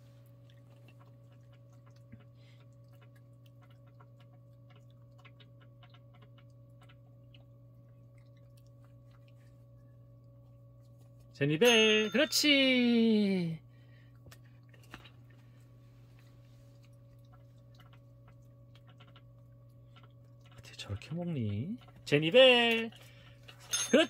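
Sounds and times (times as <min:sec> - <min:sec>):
low electrical hum: 0:00.0 - 0:24.0
puppy chewing soft clicks: 0:00.2 - 0:11.1.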